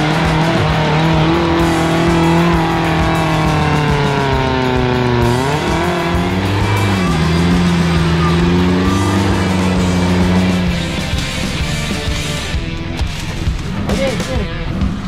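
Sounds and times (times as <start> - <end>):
off-road vehicle engine under load: 0.0 - 15.0.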